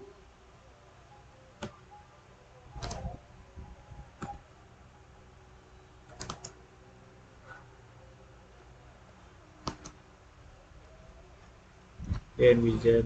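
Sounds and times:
computer keyboard keystrokes: 6.1s - 6.6s, 9.6s - 10.0s.

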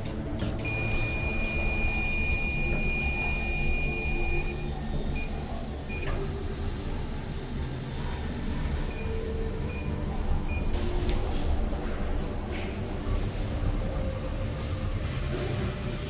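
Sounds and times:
steady low drone: 0.0s - 16.0s
electrocardiograph beeping: 0.6s - 6.2s.

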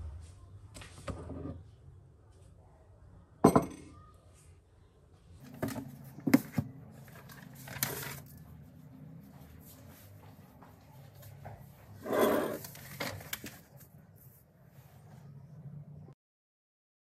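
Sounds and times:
books laid on desk: 0.7s - 1.7s, 5.4s - 15.5s
mug set down on wooden desk: 3.4s - 3.8s
paper rustling: 5.4s - 10.1s, 11.9s - 15.1s.

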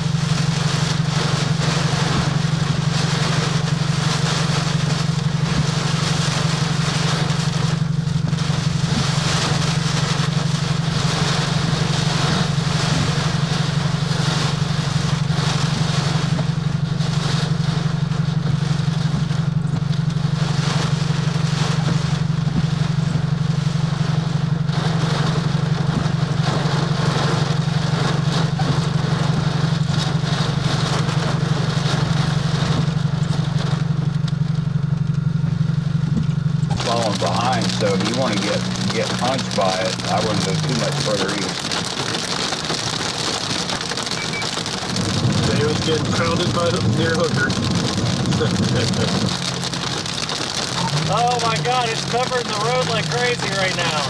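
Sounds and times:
heavy rain battering a car: 0.0s - 54.0s
low hum: 0.0s - 54.0s
gusting wind: 43.7s - 50.3s.

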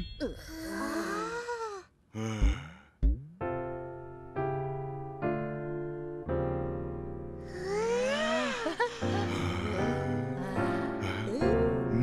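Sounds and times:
wordless vocal sounds: 0.2s - 3.0s, 7.5s - 12.0s
low thuds: 2.3s - 3.5s
piano chords ringing: 3.4s - 12.0s.

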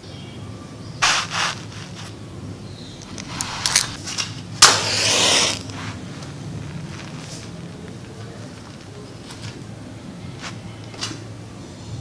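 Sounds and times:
match striking and hissing: 1.0s - 2.2s, 3.1s - 6.0s
small objects scraping: 1.0s - 2.2s, 3.0s - 9.6s.

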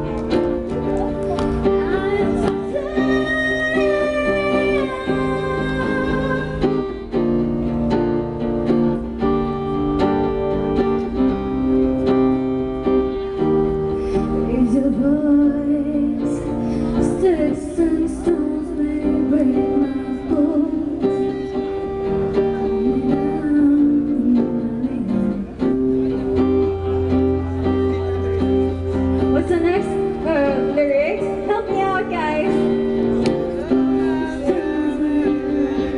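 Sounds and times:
woman singing into microphone: 1.4s - 7.9s, 14.2s - 26.9s, 29.2s - 35.9s.

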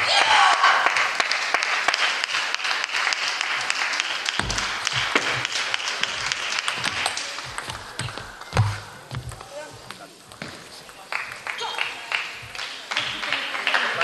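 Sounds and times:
footsteps thumping on floor: 4.4s - 5.4s, 8.1s - 9.4s
table tennis balls clicking: 6.7s - 11.5s.

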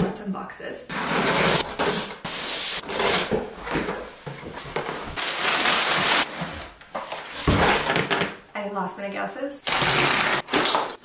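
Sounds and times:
packing paper rustling: 1.3s - 8.1s, 9.6s - 11.0s
packing tape peeled off cardboard: 5.2s - 6.6s.

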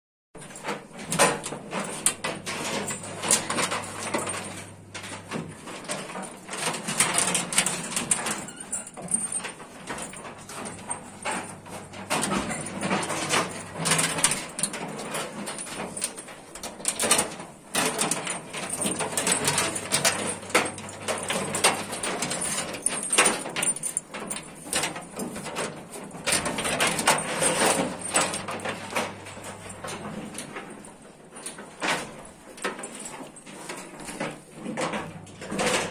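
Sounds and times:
chain and stall fittings clanking: 0.4s - 35.9s.

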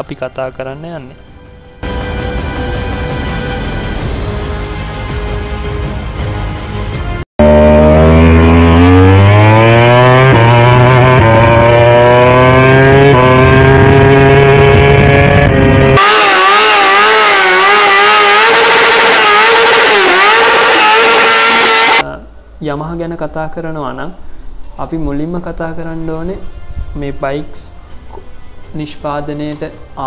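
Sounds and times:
motorcycle engine revving in burnout: 7.4s - 22.0s
racing motorcycle accelerating: 7.4s - 22.0s.

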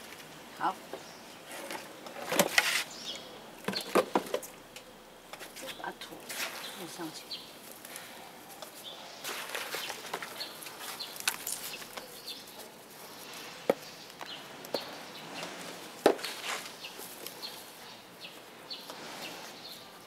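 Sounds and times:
soil rustling: 0.0s - 4.6s, 5.3s - 20.0s
trowel scraping soil: 2.5s - 2.9s, 15.2s - 17.0s, 18.9s - 19.8s.

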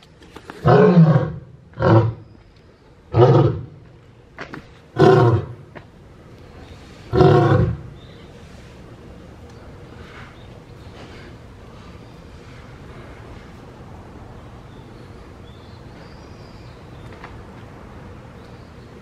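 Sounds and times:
lion roaring: 0.6s - 2.2s, 3.1s - 3.8s, 5.0s - 5.6s, 7.1s - 7.9s.

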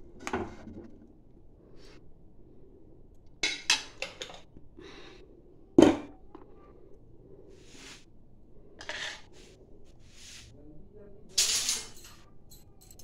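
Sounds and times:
metal spatula scraping a pot: 8.8s - 9.3s.

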